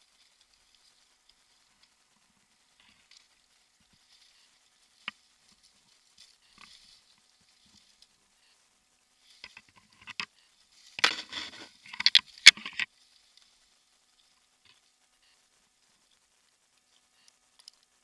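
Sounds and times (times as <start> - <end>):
rope and gear scraping on bark: 0.0 - 8.6, 9.2 - 17.8.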